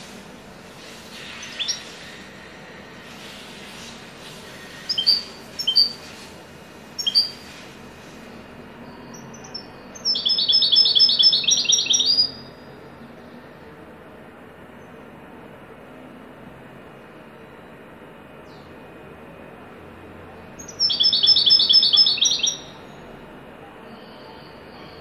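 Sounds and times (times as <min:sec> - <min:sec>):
goldfinch singing: 0:01.3 - 0:02.0, 0:04.8 - 0:06.1, 0:07.0 - 0:07.5, 0:09.1 - 0:12.6, 0:20.6 - 0:22.8.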